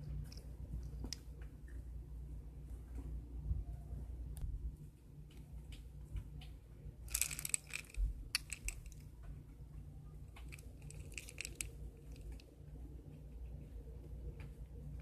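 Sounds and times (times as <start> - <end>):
rustling clatter: 7.0 - 9.4, 10.3 - 12.4
dry pasta clinking in glass jar: 7.1 - 9.0.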